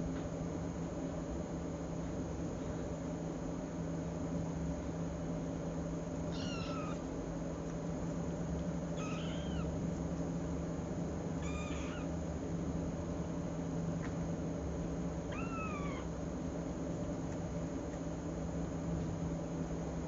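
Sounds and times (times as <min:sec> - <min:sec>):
low background hum: 0:00.0 - 0:20.0
kitten meowing: 0:06.3 - 0:07.1, 0:09.0 - 0:09.7, 0:11.4 - 0:12.2, 0:15.3 - 0:16.1.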